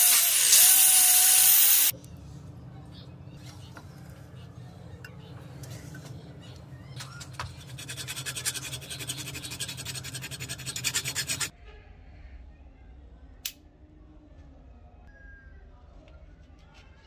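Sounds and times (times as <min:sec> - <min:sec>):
file scraping steel blade: 0:07.0 - 0:11.5.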